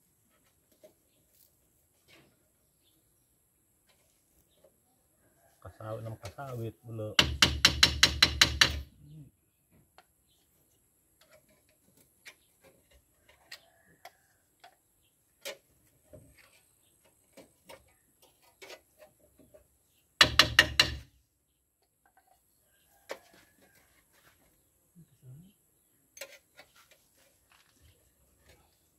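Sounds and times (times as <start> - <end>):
loud metal knocks: 7.2 - 8.9, 20.2 - 21.1.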